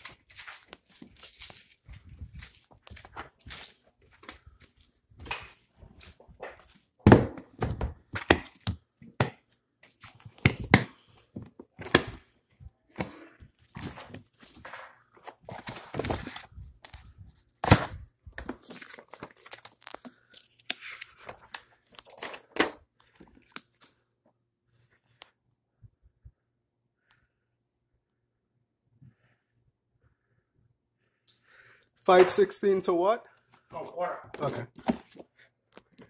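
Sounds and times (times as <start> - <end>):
rustling of contents and papers: 0.0 - 25.4, 31.4 - 36.0.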